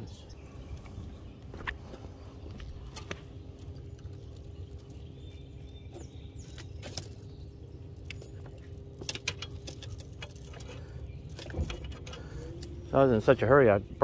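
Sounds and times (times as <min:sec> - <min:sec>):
fishing tackle rattling: 0:06.4 - 0:12.6.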